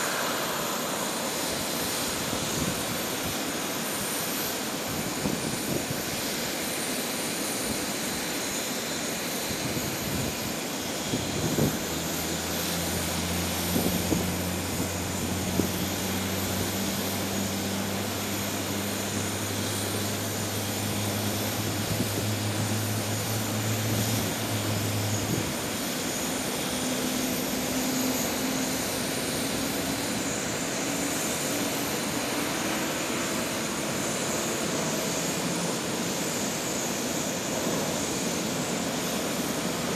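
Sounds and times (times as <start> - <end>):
low hum: 0.0 - 3.0
jet engine whine and rush: 0.0 - 39.9.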